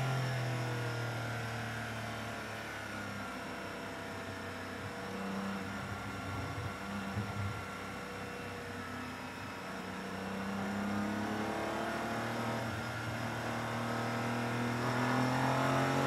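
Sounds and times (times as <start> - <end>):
race car engine decelerating: 4.8 - 16.0.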